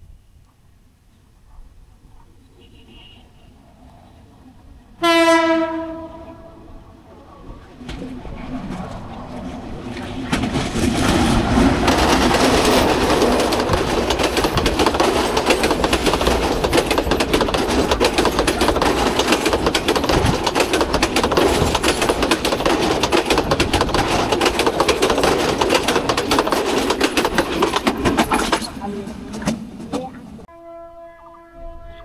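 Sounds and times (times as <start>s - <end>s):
train passing: 0.0s - 32.0s
wheels clattering over rail joints: 7.6s - 30.5s.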